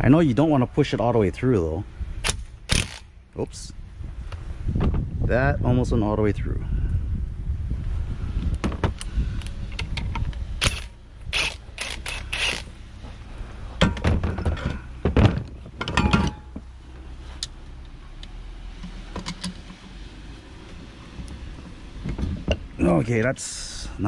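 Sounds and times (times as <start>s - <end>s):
low wind rumble: 0.0s - 24.0s
metal tools clanking: 15.8s - 16.6s.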